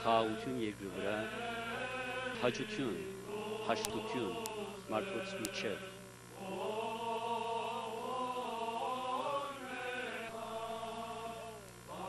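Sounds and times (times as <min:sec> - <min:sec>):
liturgical chant singing: 0:00.0 - 0:12.0.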